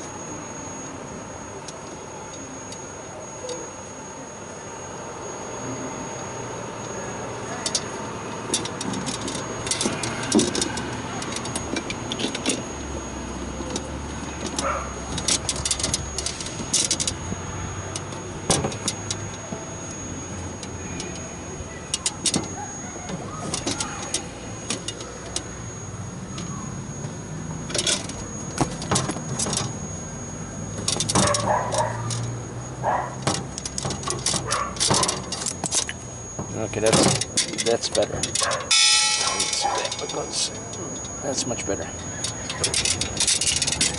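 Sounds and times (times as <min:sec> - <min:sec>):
steady low hum: 0:00.0 - 0:43.9
metallic clicks and rattles: 0:42.2 - 0:43.9.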